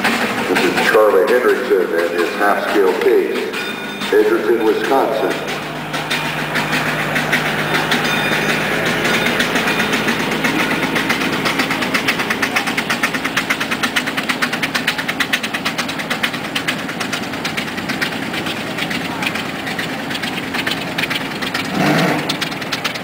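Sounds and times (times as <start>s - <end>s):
steam engine chuffing: 0.0s - 23.0s.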